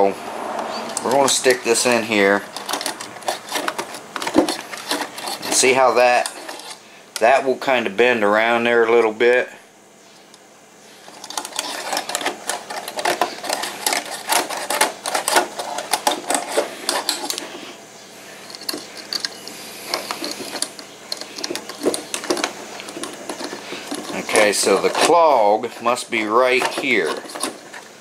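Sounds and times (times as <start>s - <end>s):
wire scraping and clicking in tube: 0.9s - 6.8s, 11.1s - 17.6s, 18.5s - 27.9s.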